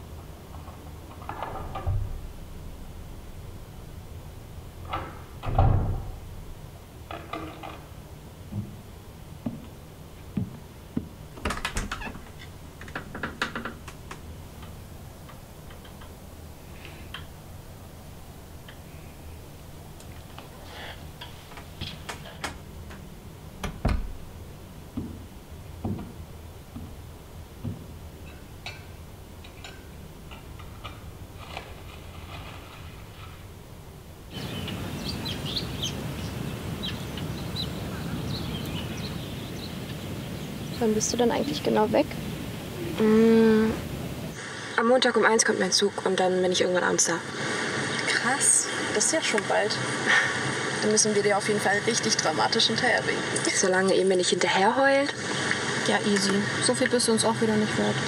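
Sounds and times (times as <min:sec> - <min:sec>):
low background hum: 0:00.0 - 0:58.0
door handle and latch rattling: 0:11.4 - 0:14.8
soft thumps: 0:27.6 - 0:27.9
birds chirping: 0:34.3 - 0:45.8, 0:46.5 - 0:54.4.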